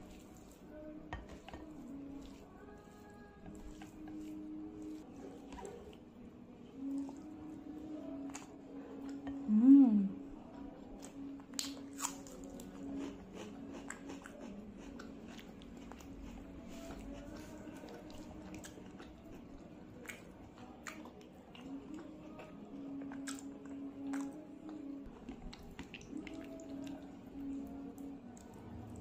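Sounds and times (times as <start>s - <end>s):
close chewing with mouth clicks: 11.0s - 29.0s.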